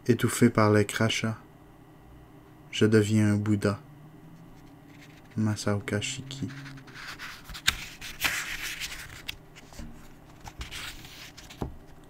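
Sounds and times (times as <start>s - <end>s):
book pages rustling: 4.5s - 5.6s, 6.3s - 12.0s.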